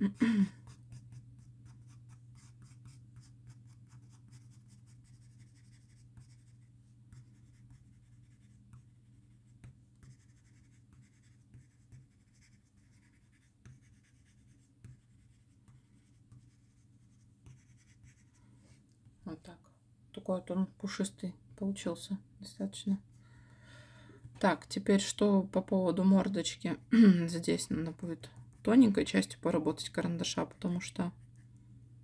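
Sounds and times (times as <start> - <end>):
faint low hum: 0.0 - 32.0
pencil scratching on paper: 0.6 - 18.8.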